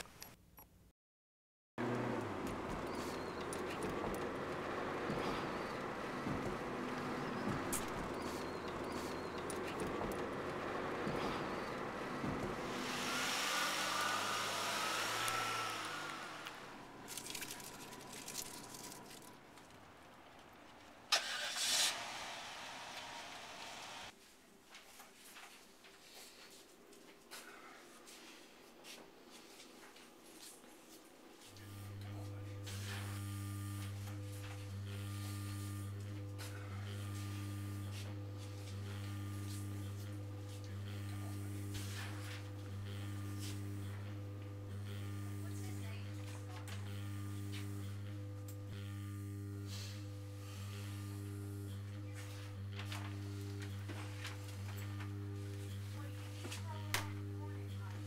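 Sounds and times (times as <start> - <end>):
slow sustained notes: 1.8 - 19.3.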